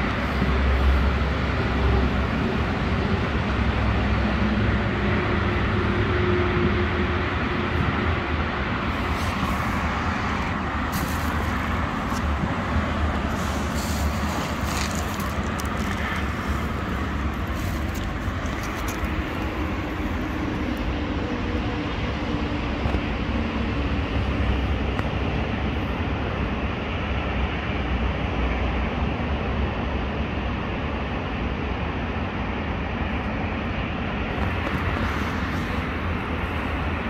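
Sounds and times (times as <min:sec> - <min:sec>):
road traffic rumble: 0:00.0 - 0:37.0
light clicks and rustles: 0:13.4 - 0:16.7.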